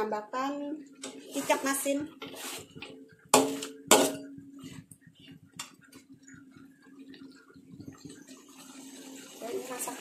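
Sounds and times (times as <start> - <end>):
spatula scraping wok: 1.0 - 4.8
metal spatula clanking on wok: 3.4 - 4.4.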